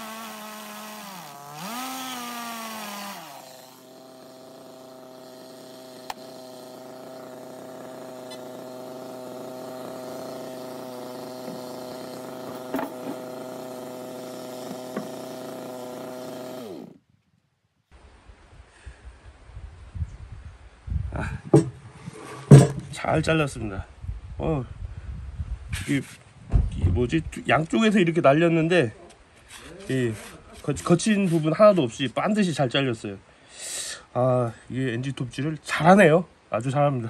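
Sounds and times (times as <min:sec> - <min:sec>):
chainsaw cutting and idling: 0:00.0 - 0:17.0.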